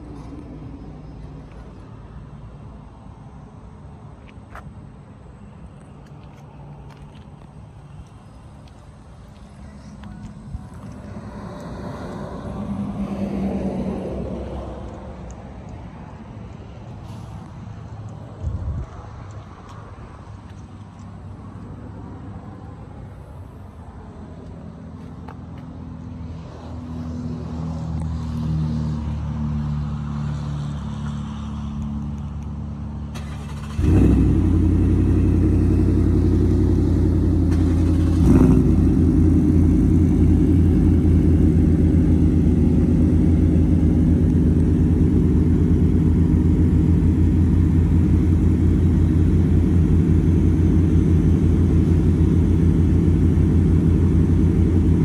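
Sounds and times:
truck engine starting and idling: 32.9 - 55.0
quieter engine idling: 33.2 - 55.0.

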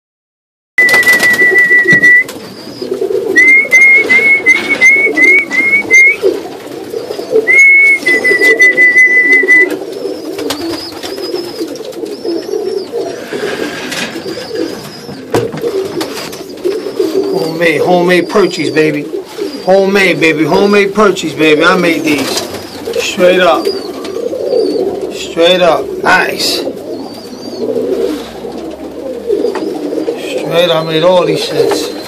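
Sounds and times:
whistled notes: 0.8 - 2.4, 3.3 - 6.3, 7.5 - 9.8
pigeons cooing: 0.8 - 32.0.

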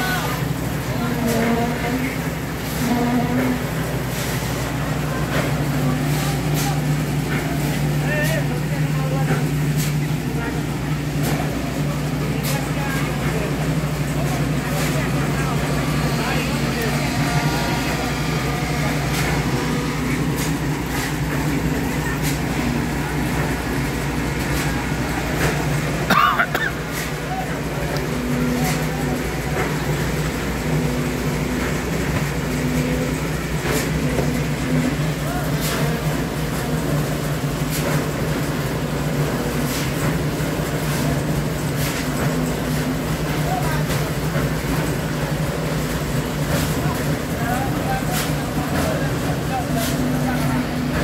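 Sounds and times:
concrete mixer engine drone: 0.0 - 51.0.

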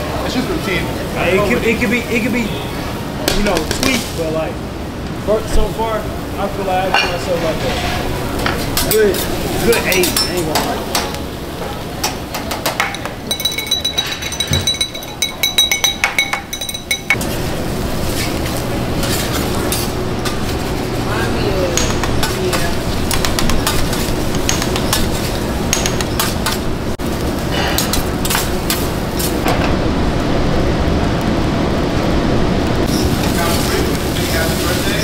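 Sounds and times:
rice sizzling on griddle: 0.1 - 4.6, 5.2 - 13.6, 17.2 - 35.0
metal spatulas clinking on griddle: 8.5 - 11.2, 12.0 - 17.2, 21.7 - 26.6.

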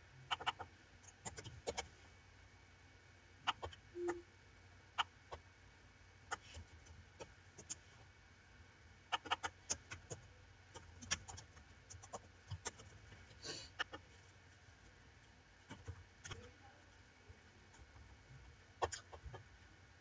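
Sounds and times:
computer mouse clicks: 0.3 - 1.9, 9.1 - 12.9, 18.8 - 19.2.

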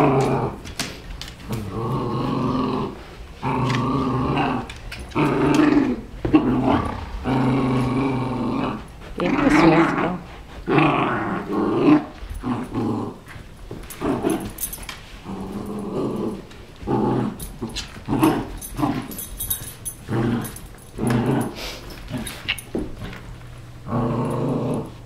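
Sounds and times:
dogs play-growling: 0.0 - 25.0.

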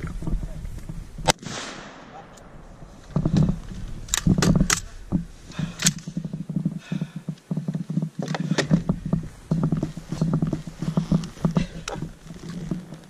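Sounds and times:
sharp rifle shots: 1.2 - 3.0
gear rustling and rifle handling: 2.3 - 13.0.

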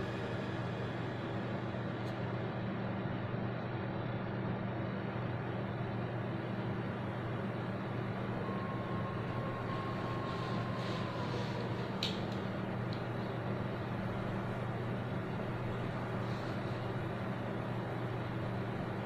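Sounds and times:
thin high tone: 8.0 - 13.6.

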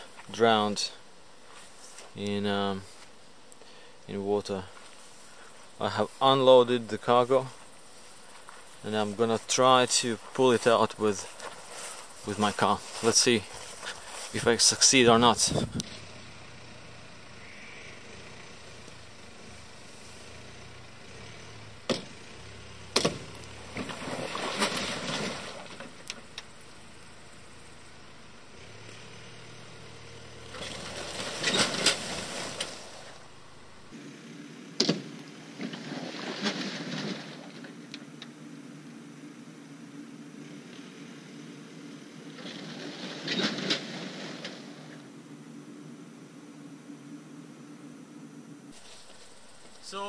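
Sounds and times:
car engine revving: 15.0 - 34.2
sharp knocks: 22.9 - 23.9.

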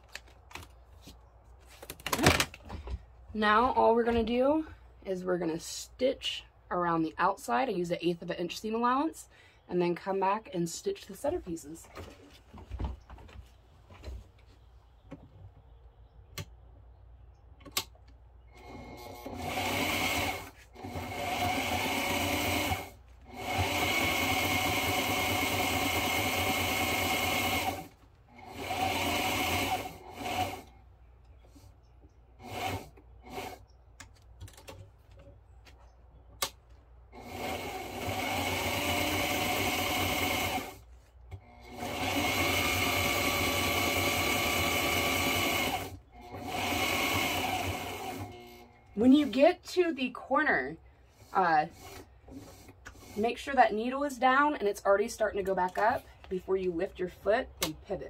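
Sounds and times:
sewing machine stitching: 18.5 - 30.8, 32.4 - 33.6, 37.2 - 40.8, 41.4 - 49.6, 51.2 - 53.6.

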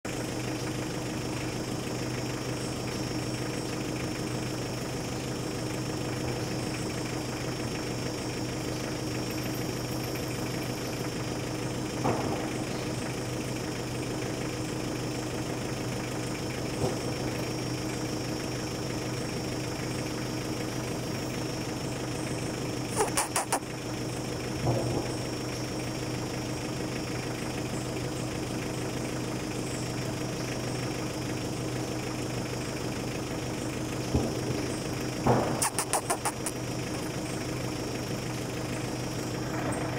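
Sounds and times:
motor humming: 0.5 - 39.9
sharp clicks: 23.0 - 23.6, 35.6 - 36.6.

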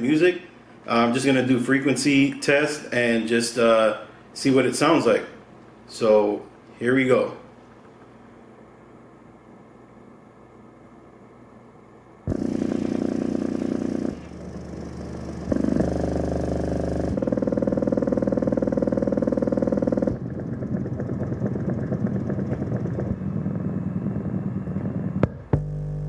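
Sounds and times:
buzzy subwoofer bass tones: 12.3 - 26.0.

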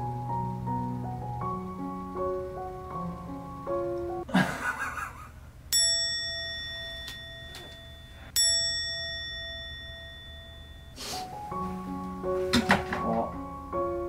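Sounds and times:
small bell ringing: 5.7 - 11.0.

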